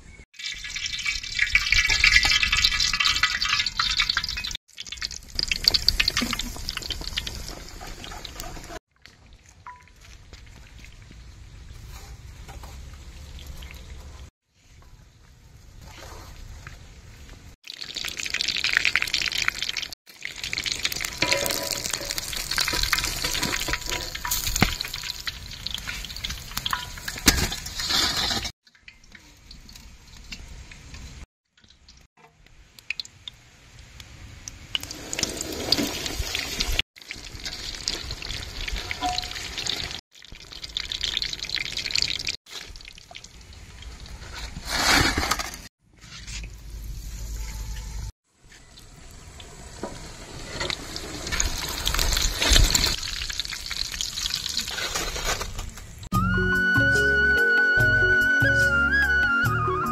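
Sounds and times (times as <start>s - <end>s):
hot oil sizzling: 0.1s - 8.8s, 17.6s - 45.7s, 46.4s - 56.1s.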